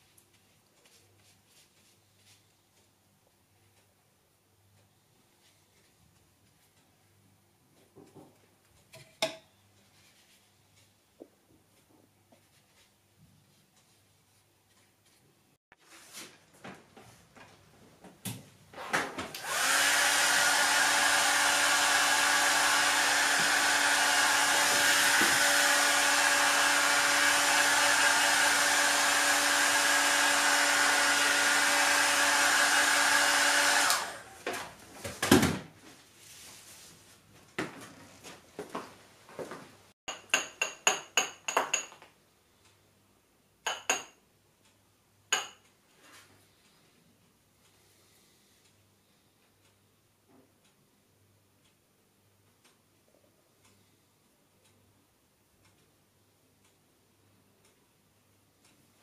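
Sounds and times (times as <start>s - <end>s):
hair dryer running: 19.3s - 34.5s.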